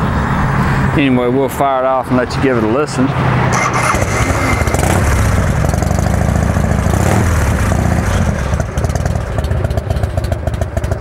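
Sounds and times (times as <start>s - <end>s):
motorcycle engine idling: 3.8s - 11.0s.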